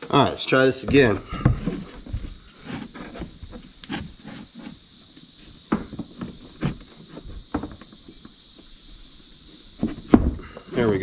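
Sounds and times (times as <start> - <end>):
steady hiss: 0.0 - 11.0
plastic bumper creaking and popping: 0.8 - 4.8, 5.6 - 8.4, 9.8 - 11.0.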